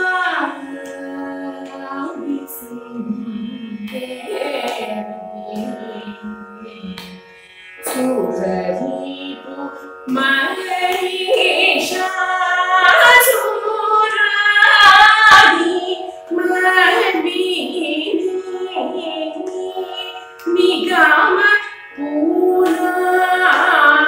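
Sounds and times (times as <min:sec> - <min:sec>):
woman singing: 0:00.0 - 0:07.2, 0:07.8 - 0:24.0.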